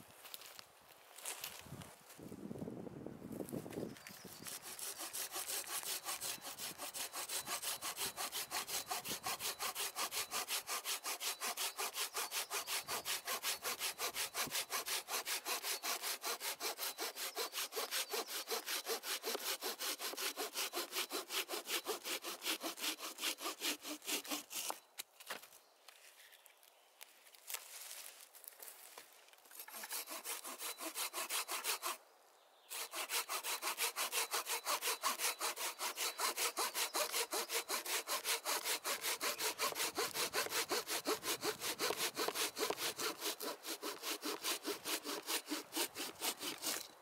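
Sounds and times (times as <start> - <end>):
hand saw cutting log: 4.2 - 24.8, 29.6 - 32.0, 32.7 - 47.0.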